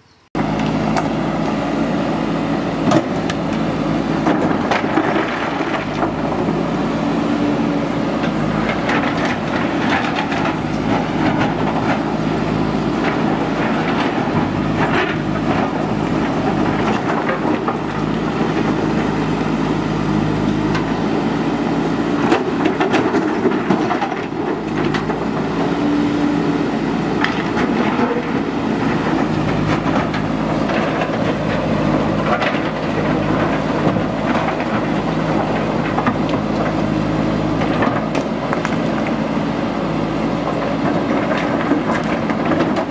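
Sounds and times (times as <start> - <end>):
diesel engine under load: 0.0 - 42.9
rocks knocking and clattering: 37.6 - 39.2.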